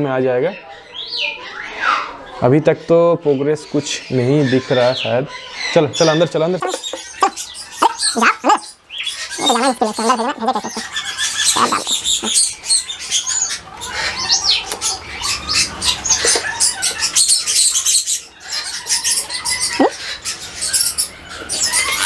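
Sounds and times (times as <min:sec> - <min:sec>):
parrots chirping and squeaking: 0:03.7 - 0:22.0.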